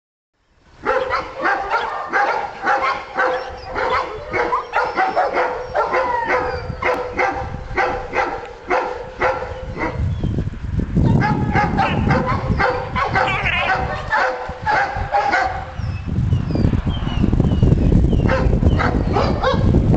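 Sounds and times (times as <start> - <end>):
dogs barking: 0.8 - 10.1, 11.0 - 15.8, 18.2 - 19.8
dog whining yips: 2.8 - 7.0, 18.2 - 19.6.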